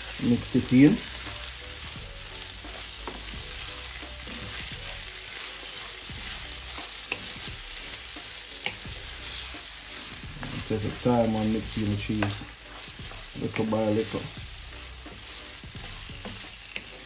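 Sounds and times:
meat sizzling in a frying pan: 0.0 - 17.0
spatula stirring and scraping: 0.0 - 17.0
spatula clicking against pan: 8.6 - 8.8.

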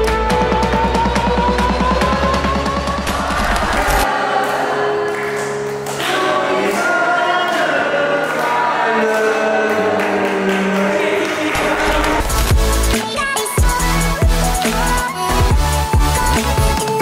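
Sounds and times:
choir singing over held chords: 2.7 - 12.9
deep music beat: 11.6 - 17.0.

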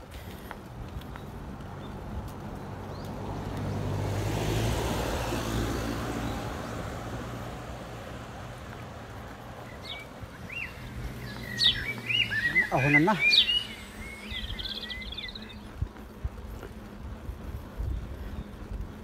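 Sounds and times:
car passing and driving off: 1.4 - 15.6
bird chirps: 9.6 - 15.7.

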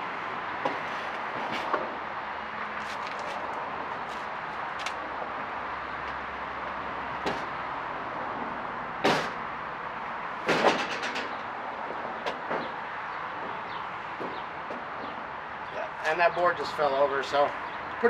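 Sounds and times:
steady background noise: 0.0 - 18.0.

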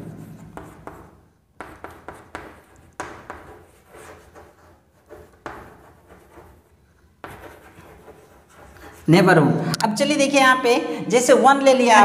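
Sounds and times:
chalk tapping and scratching: 0.0 - 9.1.

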